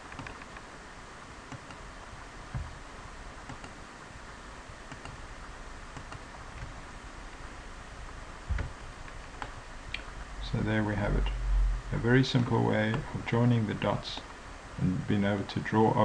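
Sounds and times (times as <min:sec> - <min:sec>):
mouse and keyboard clicks: 0:00.0 - 0:00.7, 0:03.5 - 0:03.8, 0:04.9 - 0:05.2.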